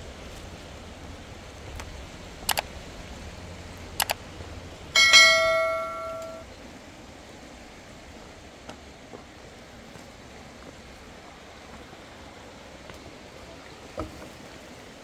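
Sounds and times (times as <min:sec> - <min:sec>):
quick double clicks: 0:02.5 - 0:02.7, 0:04.0 - 0:04.2
sharp metallic strike ringing: 0:05.0 - 0:06.4.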